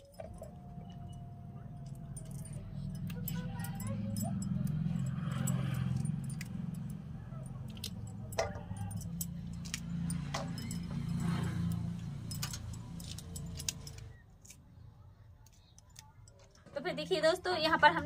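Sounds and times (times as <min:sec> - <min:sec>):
glass bangles clinking: 0:00.0 - 0:14.6
beans snapping: 0:07.6 - 0:08.1.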